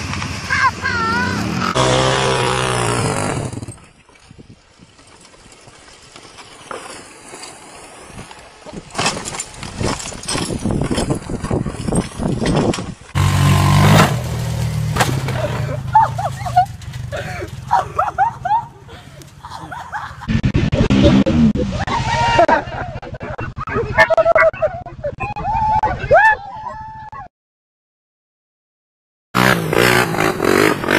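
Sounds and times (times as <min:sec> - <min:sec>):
quad bike engines: 0:00.0 - 0:07.0, 0:08.2 - 0:24.5, 0:29.4 - 0:30.9
wind on microphone: 0:09.6 - 0:13.2.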